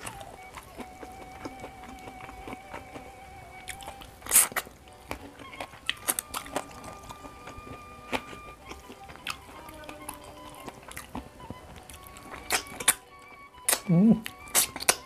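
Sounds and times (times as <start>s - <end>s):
soft background music: 0.0s - 15.0s
wet chewing and smacking: 0.0s - 15.0s
crackling burst: 2.3s - 8.8s.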